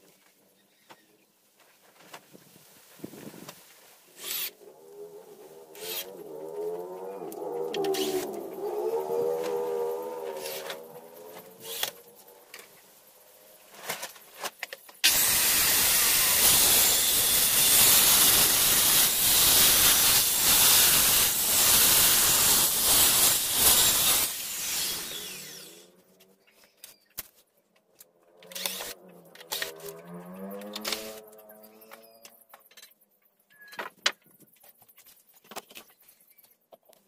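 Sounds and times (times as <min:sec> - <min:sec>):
circular saw cutting wood: 0:04.1 - 0:14.2, 0:15.0 - 0:26.1, 0:28.4 - 0:32.2.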